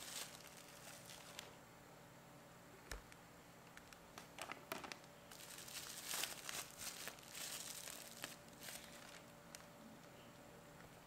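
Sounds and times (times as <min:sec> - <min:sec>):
plastic wrapping crinkling: 0:00.0 - 0:01.6, 0:03.8 - 0:09.8.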